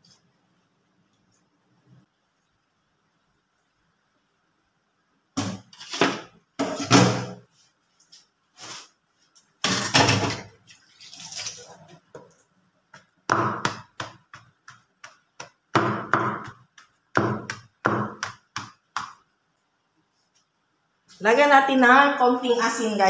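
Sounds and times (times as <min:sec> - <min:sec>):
stone pestle pounding: 0:13.3 - 0:19.2.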